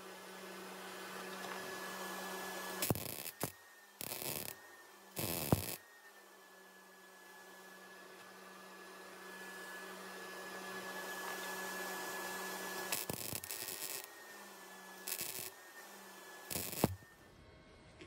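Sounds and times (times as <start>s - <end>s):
electrical hum with high whine: 0.0s - 18.0s
welding arc crackling: 2.8s - 4.6s, 5.2s - 5.8s, 12.9s - 14.1s, 15.0s - 15.6s, 16.5s - 17.0s.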